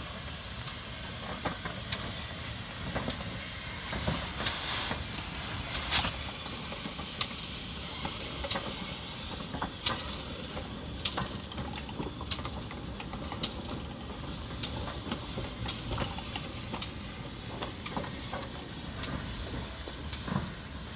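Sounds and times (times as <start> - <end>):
steam hissing: 0.0 - 20.9
steam locomotive rolling past: 0.0 - 20.9
metallic clicks from wheels: 5.7 - 20.6.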